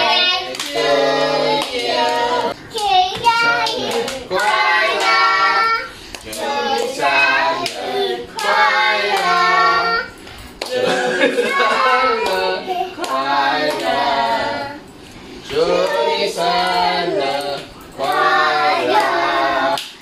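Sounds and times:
children singing together: 0.0 - 20.0
hands clapping along: 0.1 - 1.0, 1.6 - 5.4, 6.1 - 9.5, 10.6 - 10.9, 12.2 - 14.1, 18.9 - 20.0.

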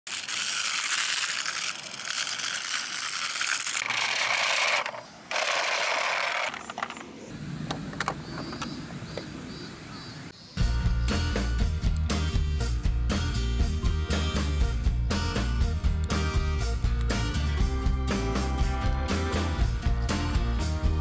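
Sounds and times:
toy wheels rattling on metal: 0.0 - 7.0
music: 10.6 - 21.0.

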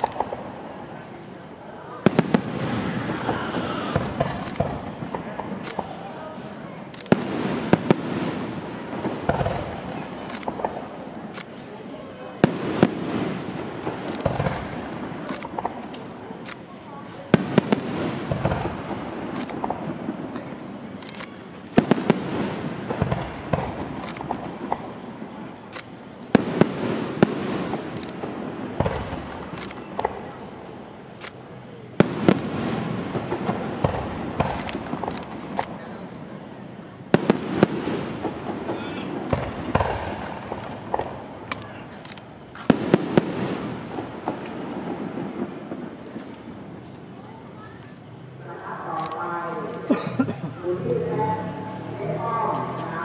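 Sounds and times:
crackling tail of pops: 0.0 - 0.5
firework shells bursting: 0.0 - 0.9, 2.0 - 11.8, 12.4 - 35.8, 37.0 - 46.6.

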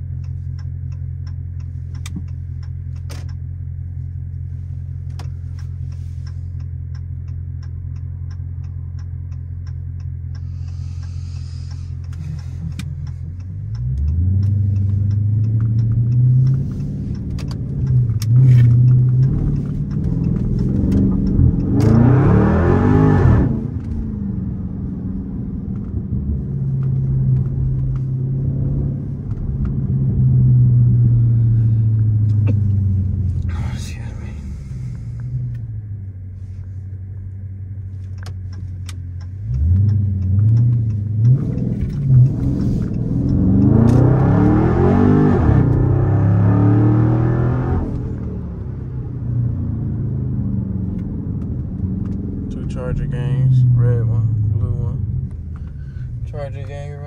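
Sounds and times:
car engine idling and revving: 0.0 - 57.0.

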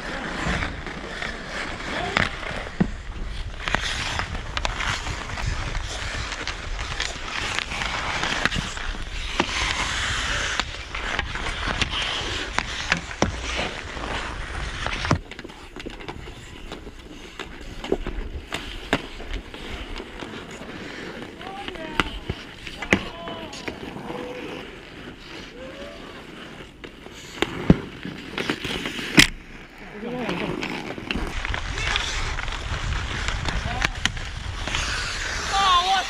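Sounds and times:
hockey sticks and puck clacking: 0.0 - 36.0
skates scraping on ice: 0.0 - 36.0.

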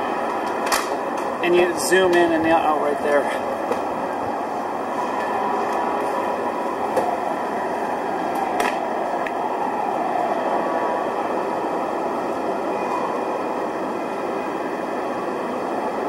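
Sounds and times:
city street noise: 0.0 - 16.0.

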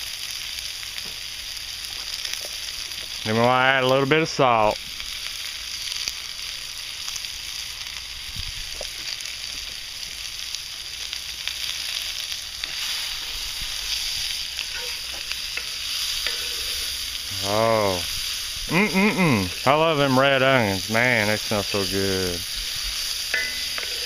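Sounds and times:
onions sizzling in grease: 0.0 - 24.0
wooden spatula stirring: 12.6 - 17.5, 22.4 - 24.0.

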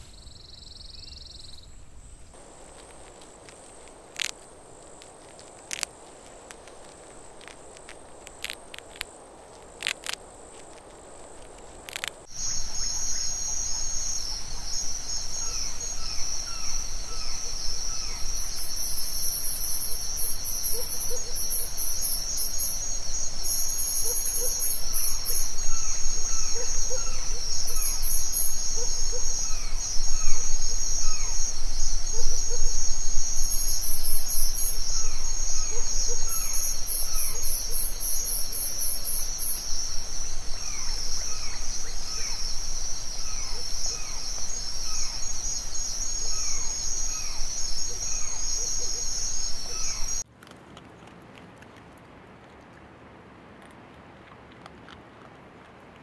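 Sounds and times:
insect drone: 0.0 - 50.2
rapid high-pitched insect pulsing: 11.9 - 50.2.

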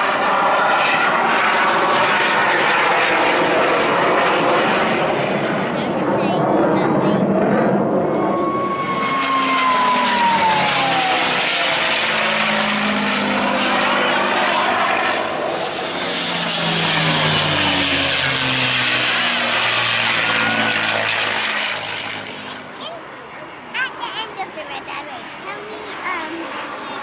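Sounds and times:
propeller aircraft flying past: 0.0 - 27.0.

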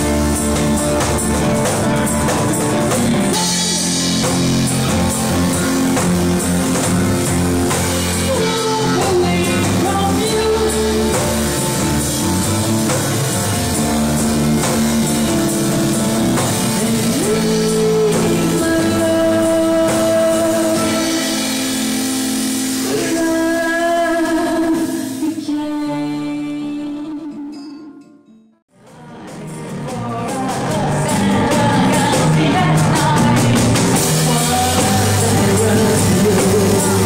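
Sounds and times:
plucked double bass: 0.0 - 23.4
acoustic guitar: 0.0 - 37.0
drums: 0.0 - 37.0
woman singing: 8.1 - 11.6, 16.7 - 21.4, 22.8 - 27.9, 28.8 - 37.0.

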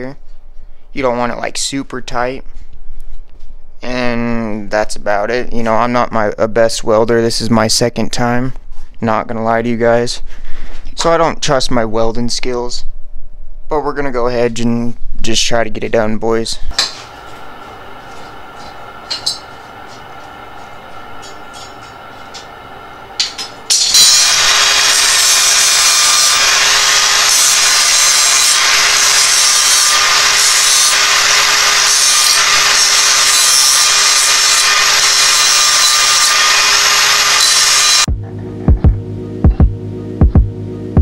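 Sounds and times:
angle grinder grinding steel: 16.7 - 38.1.

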